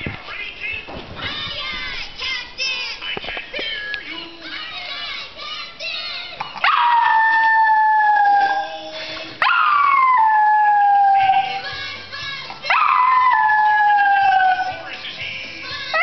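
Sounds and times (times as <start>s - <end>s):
cartoon music and sounds on tv: 0.0s - 16.0s
small dog howling: 6.6s - 11.6s, 12.7s - 14.9s.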